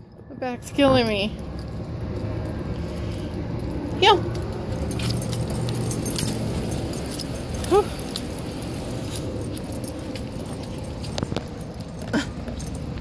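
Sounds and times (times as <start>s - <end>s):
light metal jingling: 0.1s - 13.0s.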